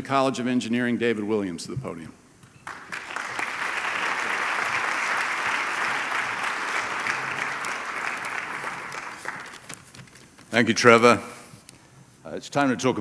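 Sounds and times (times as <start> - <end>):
audience applauding: 2.6 - 9.9.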